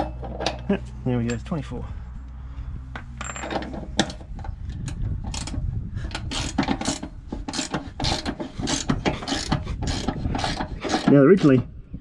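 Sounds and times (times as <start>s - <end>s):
hand ratchet clicking: 4.9s - 11.1s.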